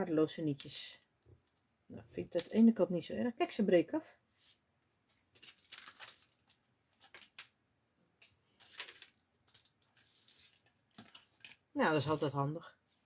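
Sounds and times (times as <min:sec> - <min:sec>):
plastic packaging crinkling: 0:05.1 - 0:07.6, 0:08.5 - 0:12.4.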